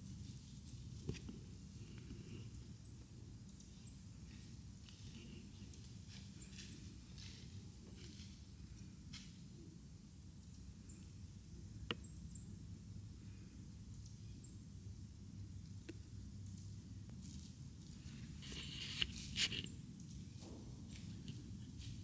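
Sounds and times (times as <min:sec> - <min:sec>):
leaves rustling: 0:04.2 - 0:09.5, 0:17.2 - 0:22.0.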